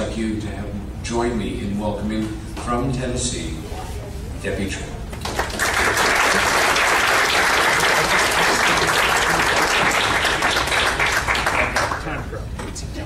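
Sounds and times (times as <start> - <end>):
audience applauding: 5.2 - 12.2.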